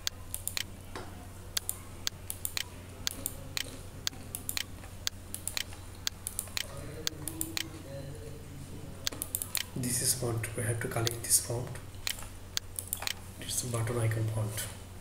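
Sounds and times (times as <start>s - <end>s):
steady low hum: 0.0s - 15.0s
mouse and keyboard clicking: 9.1s - 9.7s, 12.0s - 13.2s.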